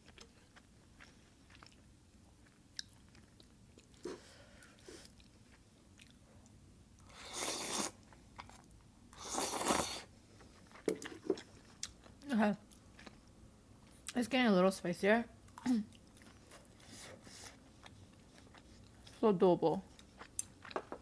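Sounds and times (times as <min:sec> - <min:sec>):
soft chewing: 0:00.0 - 0:14.2, 0:15.4 - 0:21.0
noodles slurped: 0:07.2 - 0:08.0, 0:09.2 - 0:10.1.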